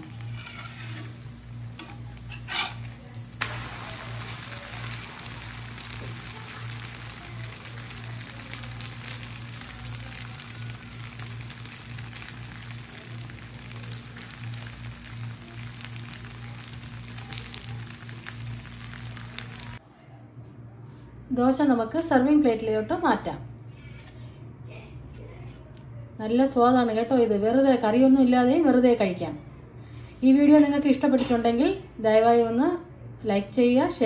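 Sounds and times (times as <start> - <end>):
spatula scraping pan: 0.0 - 3.0
crackling sizzle of frying: 0.0 - 19.8
constant low hum: 0.0 - 26.2.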